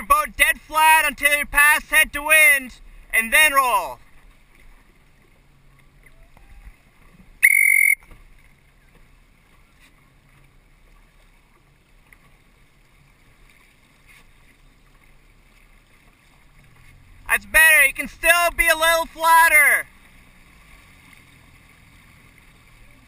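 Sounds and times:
faint water: 0.0s - 23.0s
short whistle blast: 7.4s - 8.1s.

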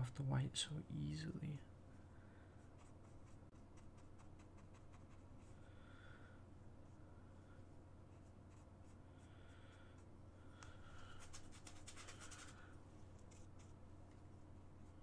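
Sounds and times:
low steady hum: 0.0s - 15.0s
paintbrush strokes on canvas: 2.6s - 5.6s, 8.1s - 10.1s.

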